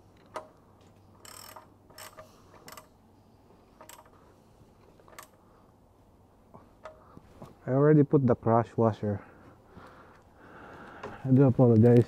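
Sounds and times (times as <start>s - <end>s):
ratchet wrench clicking: 1.2s - 2.9s, 3.8s - 4.2s.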